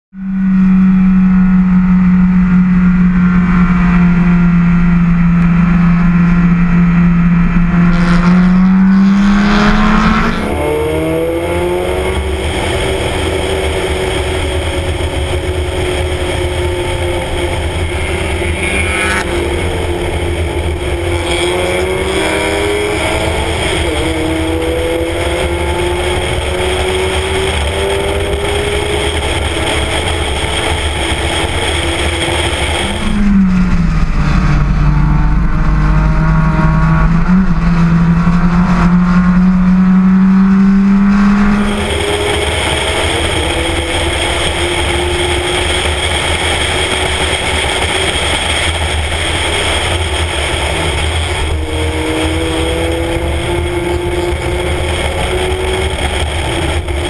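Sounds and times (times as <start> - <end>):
race car engine running hard: 0.2 - 57.0
wind rush: 5.2 - 57.0.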